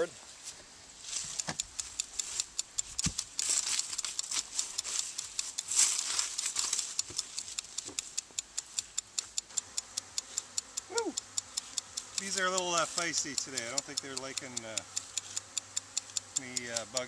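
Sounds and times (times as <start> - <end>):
beekeeper suit rustling: 0.0 - 8.8, 11.6 - 13.6
fast steady ticking: 1.2 - 17.0.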